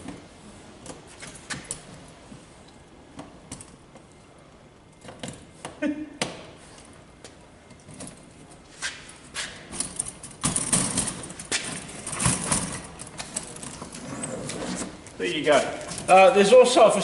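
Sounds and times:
metal clothes rack rattling: 9.7s - 14.0s.

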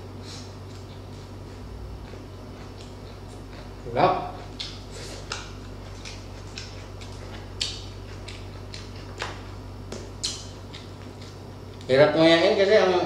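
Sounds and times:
chewing crispy skin crunches: 0.4s - 12.0s.

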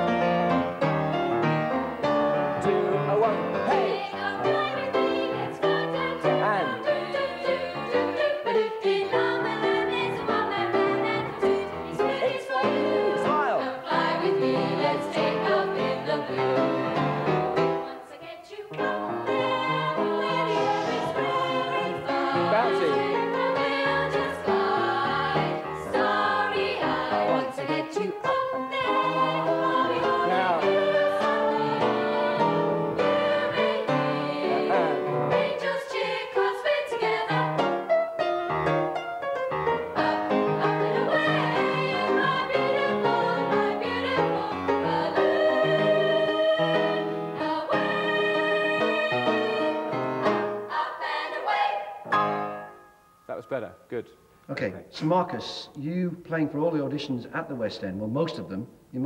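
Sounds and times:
grand piano: 0.0s - 53.9s
women singing together: 3.7s - 37.7s, 39.9s - 52.1s.

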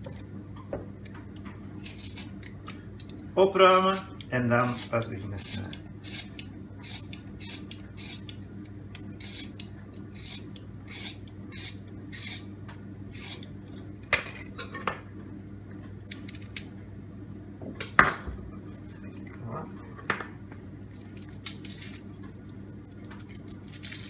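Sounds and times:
peeler scraping carrot: 1.8s - 12.5s, 13.1s - 13.6s.

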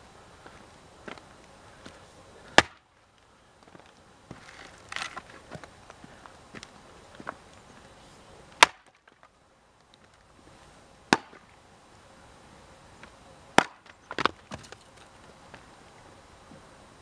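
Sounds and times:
axe chopping into wood: 2.5s - 2.8s, 8.6s - 9.2s, 11.1s - 11.4s, 13.6s - 14.7s.

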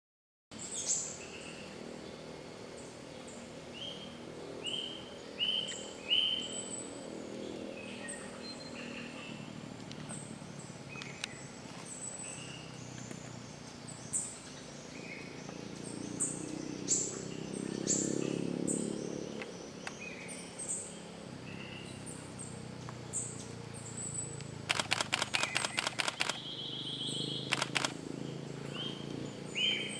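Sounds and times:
forest background: 0.5s - 29.9s
high bird chirps: 23.9s - 28.0s.

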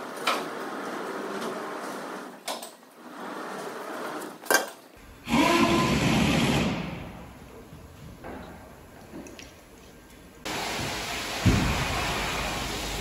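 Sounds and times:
loud rushing hiss: 5.0s - 7.8s, 10.4s - 13.0s.

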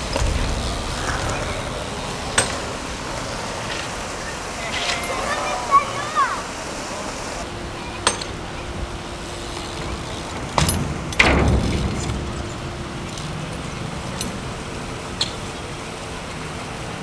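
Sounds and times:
bike landing thud: 0.0s - 4.3s
city traffic hum: 0.0s - 17.0s.

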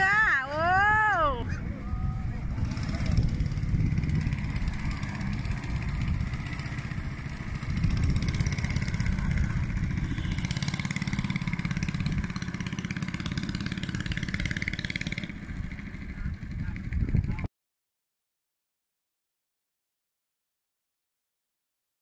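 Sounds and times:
boat engine running: 0.0s - 17.5s.

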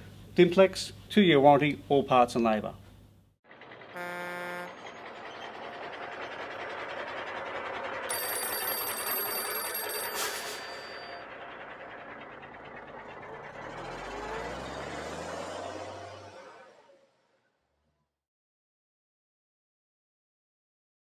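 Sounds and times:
rushing vehicle: 3.4s - 18.1s
horn honk: 3.9s - 5.0s
telephone bell ringing: 8.1s - 11.3s
sharp ding: 10.0s - 11.2s.

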